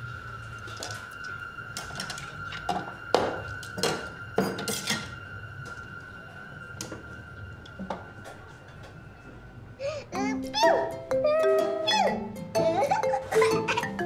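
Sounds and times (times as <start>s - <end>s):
steady high tone: 5.2s - 14.0s.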